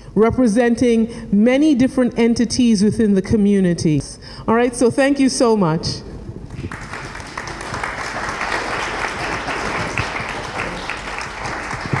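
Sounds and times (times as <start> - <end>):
audience clapping: 6.5 - 12.0.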